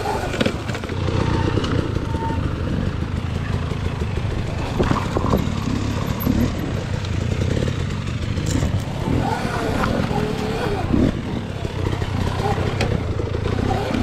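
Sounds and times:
motorbike rattling over bumps: 0.0 - 14.0
wind rumble on microphone: 4.4 - 7.1.

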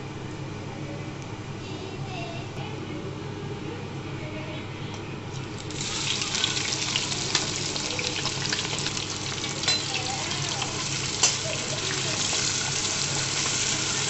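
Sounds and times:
loud crackling sizzle: 5.4 - 14.0
spices sizzling in oil: 5.5 - 14.0.

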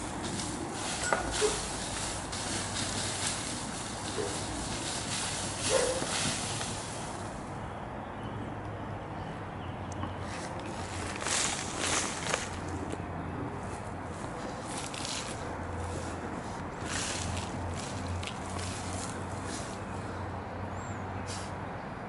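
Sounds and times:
dog paws scratching dirt: 0.0 - 7.4, 10.2 - 13.0, 13.6 - 19.8.

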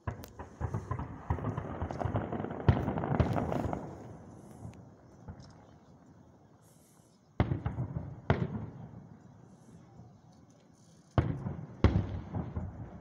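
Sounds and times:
fireworks booming: 0.0 - 5.7, 7.4 - 9.2, 11.2 - 13.0.

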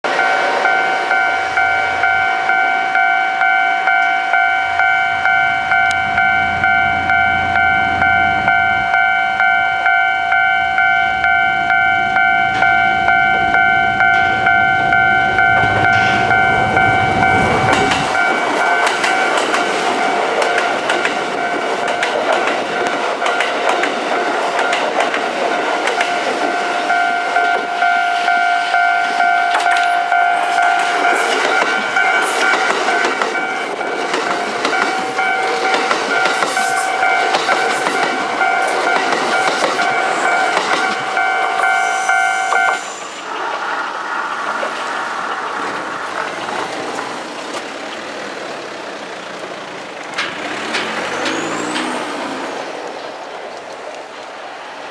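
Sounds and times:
level crossing warning bell: 0.0 - 43.0
approaching train rushing: 0.0 - 54.9
train rumble: 0.0 - 54.9.

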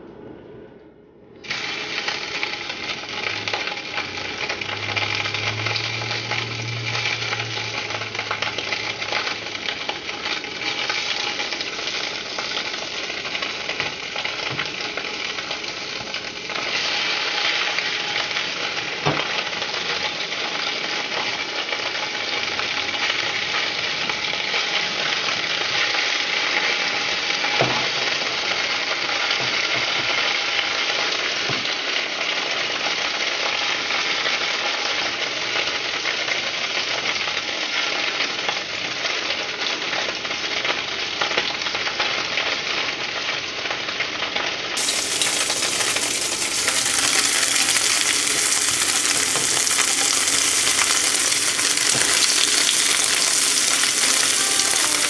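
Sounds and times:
food sizzling in hot oil: 1.4 - 23.8, 44.8 - 55.0.

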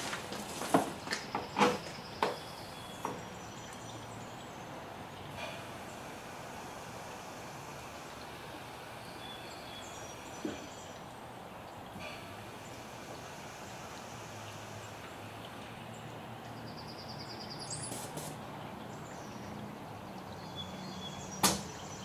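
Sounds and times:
faint hum and hiss: 0.0 - 22.0
bird chirping: 1.0 - 6.0, 9.0 - 11.0, 15.9 - 22.0.

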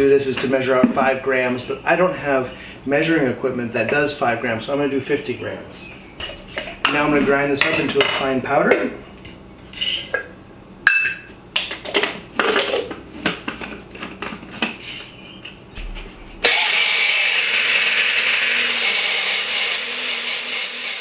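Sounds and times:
blender grinding grain: 16.4 - 21.0.

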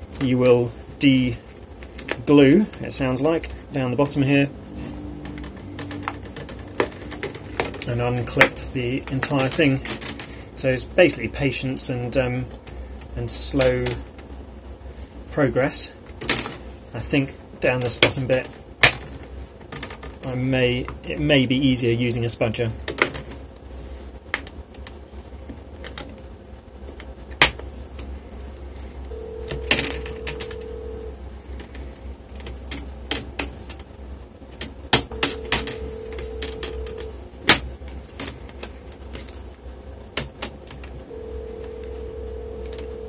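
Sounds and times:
low steady tone: 29.1 - 31.2, 41.1 - 43.0.

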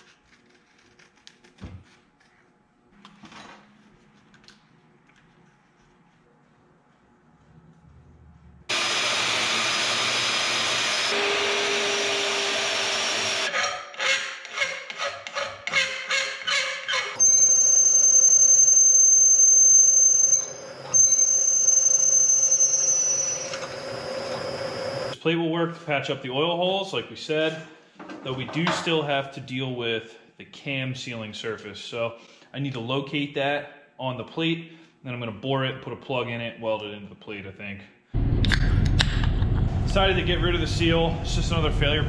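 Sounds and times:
power tool cutting metal: 8.7 - 13.8
milling machine squealing: 17.2 - 25.2.

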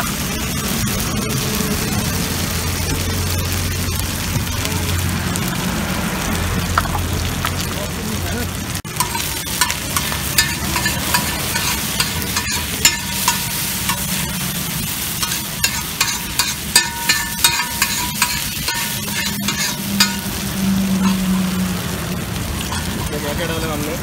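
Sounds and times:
oil sizzling on a griddle: 0.0 - 24.0
spatula scraping and tapping metal: 8.9 - 14.4, 15.2 - 21.4, 22.6 - 23.2.

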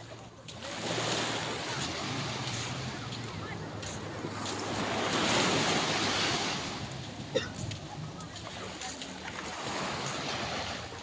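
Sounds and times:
surf breaking on beach: 0.6 - 7.2.

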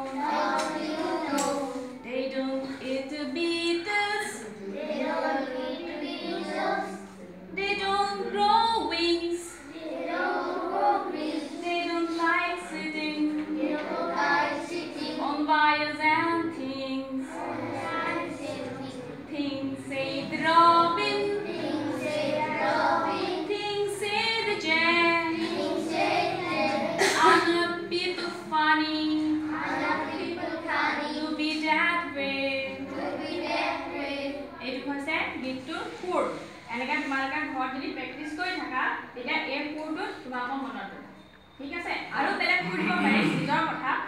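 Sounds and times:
children singing in unison: 0.0 - 2.0, 4.6 - 7.0, 9.7 - 11.7, 12.8 - 15.3, 17.1 - 27.5, 29.2 - 31.3, 32.7 - 34.5.

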